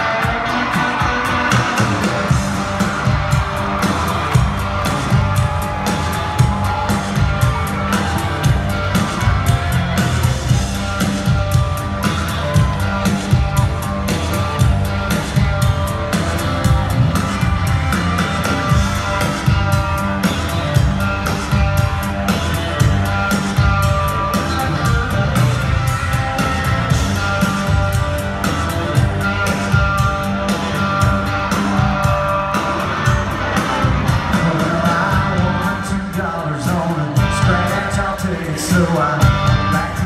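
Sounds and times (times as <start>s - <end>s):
drums with steady beat: 0.0s - 40.0s
electric guitar: 0.0s - 40.0s.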